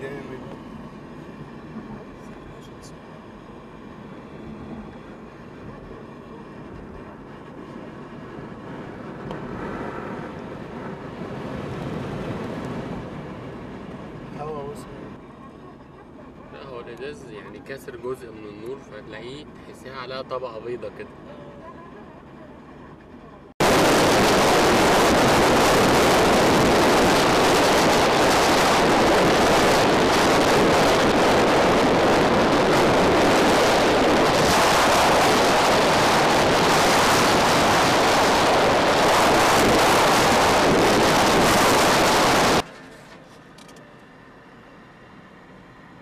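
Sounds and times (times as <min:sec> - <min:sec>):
wind rushing on car microphone: 0:00.0 - 0:15.4, 0:23.6 - 0:42.7.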